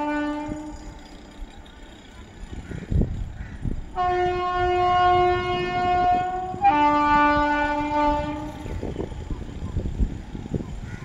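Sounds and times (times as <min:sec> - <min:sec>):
train horn two notes: 0:00.0 - 0:00.8, 0:03.9 - 0:08.6.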